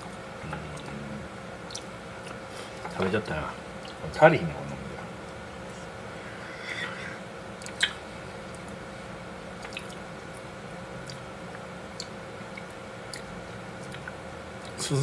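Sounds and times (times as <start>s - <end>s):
room hum: 0.0s - 15.0s
wet chewing: 1.6s - 3.0s, 7.6s - 8.8s, 9.5s - 14.8s.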